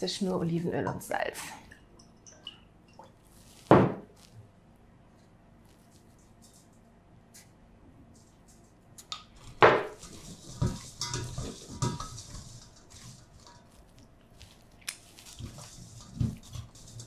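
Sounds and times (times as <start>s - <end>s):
metal bowl knocking and rattling: 9.3s - 13.9s, 15.2s - 17.0s.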